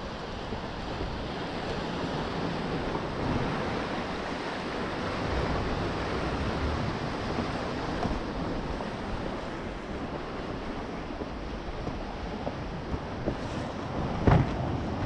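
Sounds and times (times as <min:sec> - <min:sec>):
surf washing against rocks: 0:00.0 - 0:15.0
wind buffeting microphone: 0:00.0 - 0:15.0.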